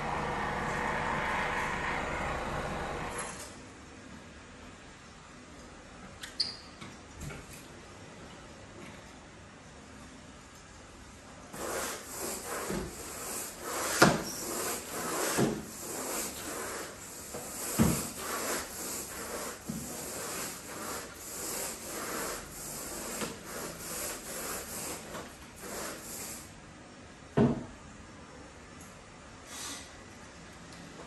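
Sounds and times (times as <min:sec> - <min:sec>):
tool scraping over carpet: 0:00.0 - 0:03.5, 0:11.5 - 0:26.5.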